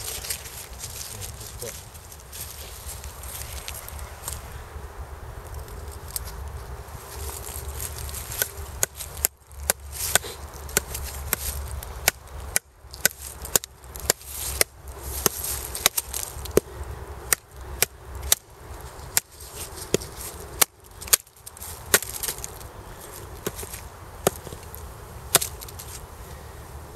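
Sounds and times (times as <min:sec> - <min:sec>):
stick knocking on knife spine: 0:25.3 - 0:25.8.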